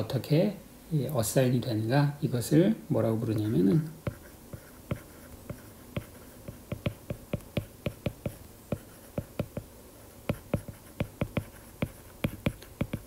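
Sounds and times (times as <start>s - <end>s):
stylus tapping on glass screen: 4.9s - 9.7s, 10.3s - 13.0s.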